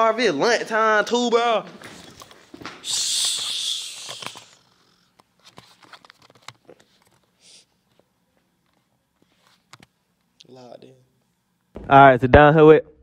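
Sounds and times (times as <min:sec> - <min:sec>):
person shushing: 0:02.8 - 0:04.7
faint clicks and rustles: 0:04.1 - 0:10.4.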